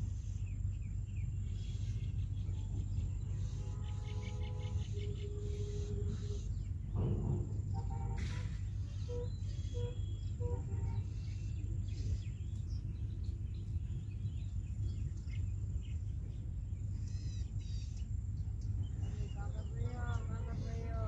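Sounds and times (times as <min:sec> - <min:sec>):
birds chirping: 0:00.0 - 0:21.0
steady low rumble: 0:00.0 - 0:21.0
high insect whine: 0:01.5 - 0:07.6.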